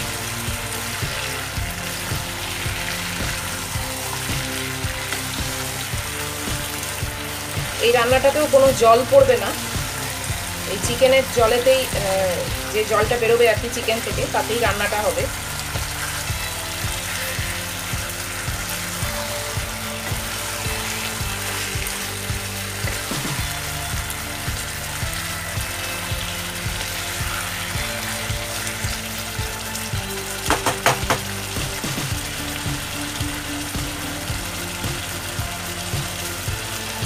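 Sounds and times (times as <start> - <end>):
chicken sizzling in oil: 0.0 - 37.0
sharp knocks: 30.5 - 31.8.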